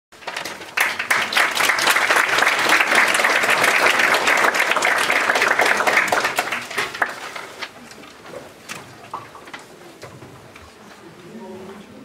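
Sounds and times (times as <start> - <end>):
audience applauding: 0.2 - 7.8.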